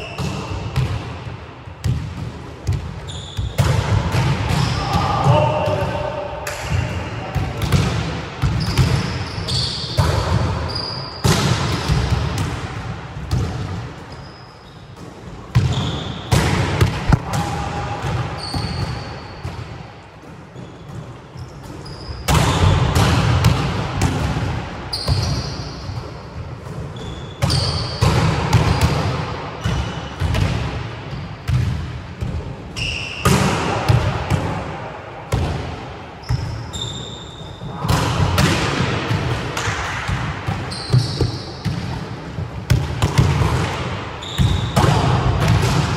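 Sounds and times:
volleyballs slapping and bouncing: 0.0 - 14.2, 14.9 - 36.6, 37.6 - 45.9
shoes squeaking on floor: 3.1 - 3.6, 8.6 - 10.0, 10.7 - 11.2, 18.4 - 19.3, 20.6 - 22.3, 24.9 - 25.9, 32.8 - 33.2, 36.2 - 37.6, 40.7 - 41.7, 44.2 - 44.7.

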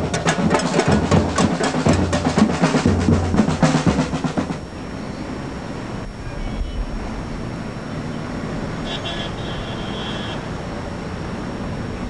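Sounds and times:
fast drumming: 0.0 - 4.7
steady background noise: 0.0 - 12.0.

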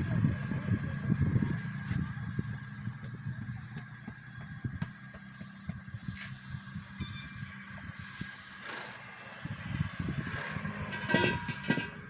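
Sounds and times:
vehicle engine idling: 0.0 - 10.8
truck tyre knocking and clattering: 1.7 - 12.0.

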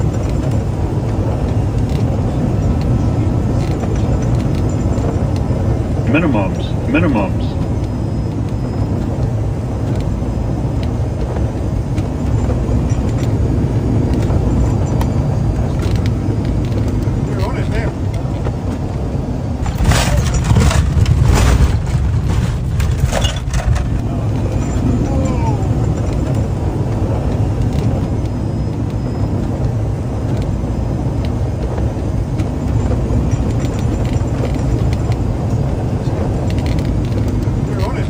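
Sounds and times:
aircraft cockpit rumble: 0.0 - 38.0
sharp knocks and rattles: 19.6 - 28.2, 31.2 - 38.0.

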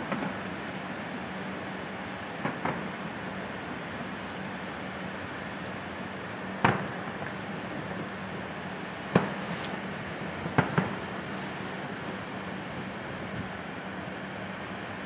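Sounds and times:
steady background noise: 0.0 - 15.0
distant firework bangs: 6.6 - 8.1, 9.0 - 11.6.

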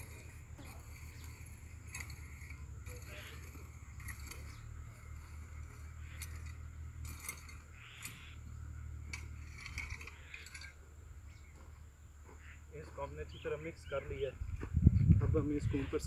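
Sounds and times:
metal rake scraping stony soil: 0.0 - 11.5.

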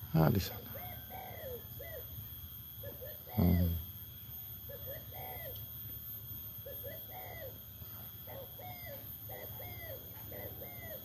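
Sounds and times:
bird cooing: 0.4 - 2.2, 2.8 - 4.0, 4.7 - 5.6, 6.6 - 11.0.

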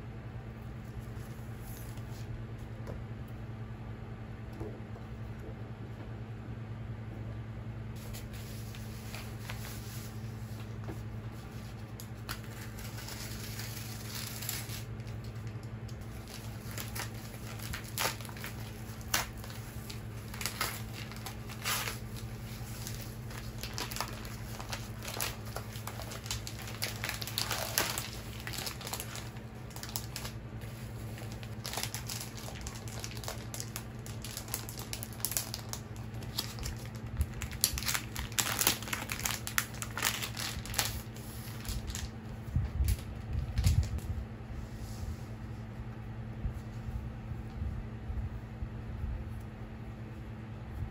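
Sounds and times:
steady low hum: 0.0 - 50.9
plastic packaging crinkling: 8.0 - 44.0.

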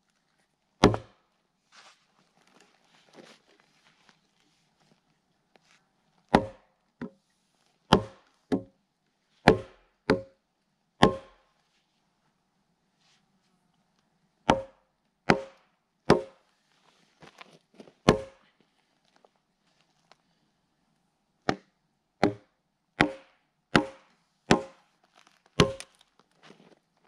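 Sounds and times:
mallet striking axe head: 0.8 - 1.1, 6.4 - 6.6, 7.9 - 8.7, 9.5 - 10.4, 11.0 - 11.4, 14.5 - 16.4, 18.1 - 18.4, 21.5 - 24.8, 25.6 - 25.8.

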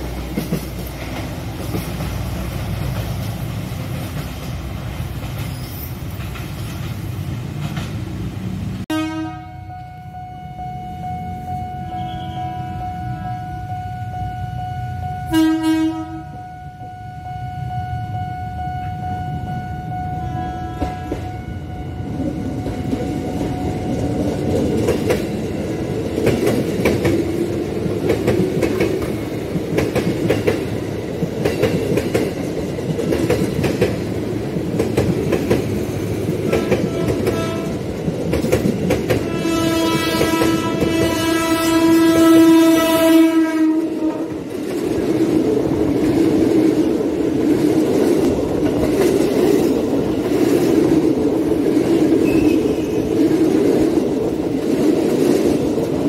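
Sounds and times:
train wheels clacking over rails: 0.0 - 8.7, 22.5 - 42.3, 44.0 - 56.0
train horn blast: 8.9 - 23.3, 36.4 - 38.0, 39.2 - 44.5.

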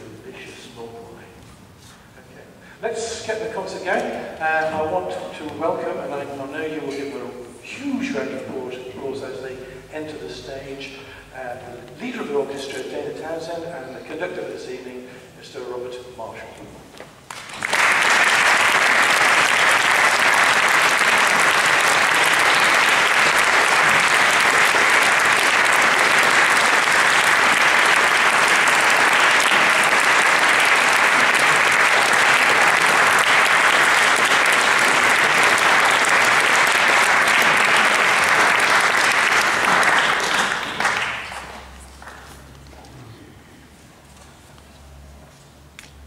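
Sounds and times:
audience applauding: 17.3 - 42.4.

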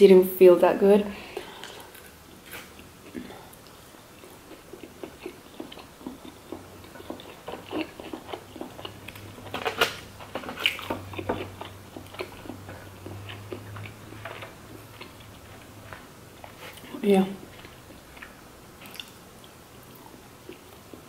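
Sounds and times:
chewing with wet mouth smacks: 2.8 - 9.6, 10.3 - 21.0
biting food: 4.2 - 15.4, 17.6 - 19.2.

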